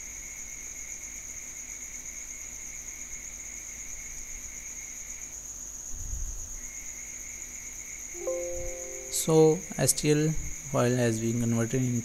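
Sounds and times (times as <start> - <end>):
high-pitched trilling: 8.2 - 9.7
faint low tone: 8.2 - 9.8.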